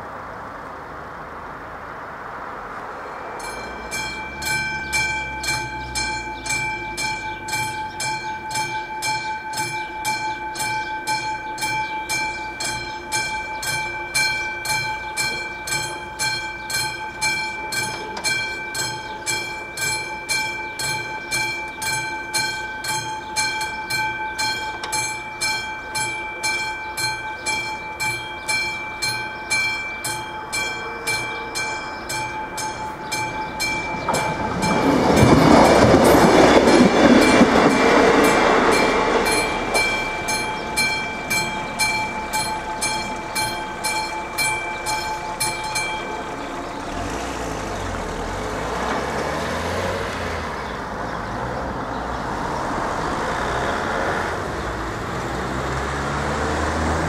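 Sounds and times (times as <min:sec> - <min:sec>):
train passing: 0:00.0 - 0:57.0
level crossing bell ringing: 0:03.2 - 0:47.4.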